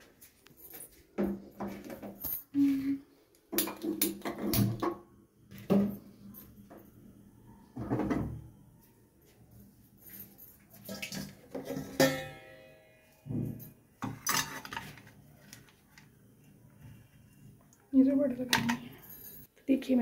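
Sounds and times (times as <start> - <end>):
pressure cooker metal clanks: 11.6 - 12.5.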